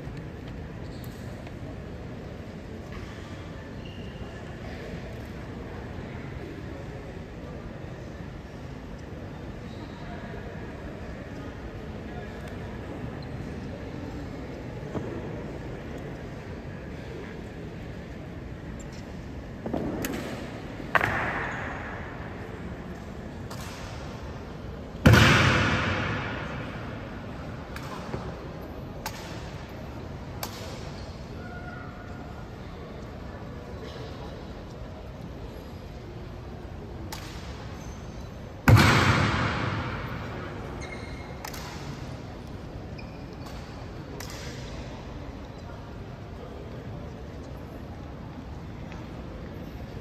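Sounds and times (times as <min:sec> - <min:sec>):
heavy thud with echo: 0:25.0 - 0:27.1, 0:38.6 - 0:40.7.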